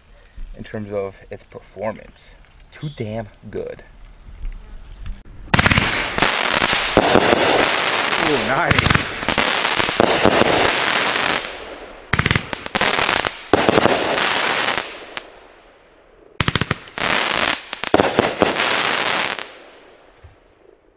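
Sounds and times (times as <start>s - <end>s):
fireworks shots and crackling: 5.5s - 20.7s.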